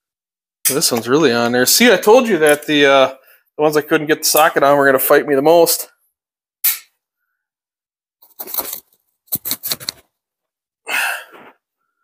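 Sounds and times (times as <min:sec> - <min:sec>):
wrench clicking and scraping: 0:08.3 - 0:10.0.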